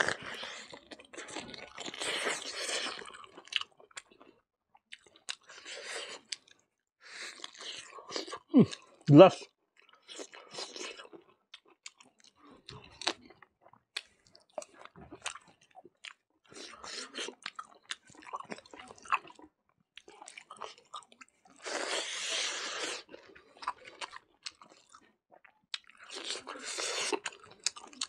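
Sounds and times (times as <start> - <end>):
wet chewing with smacks: 9.8 - 28.0.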